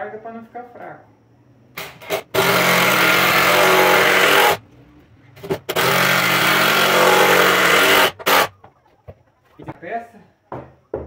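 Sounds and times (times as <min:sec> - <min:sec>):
cordless drill driving screws: 0:01.9 - 0:04.6, 0:05.5 - 0:08.5.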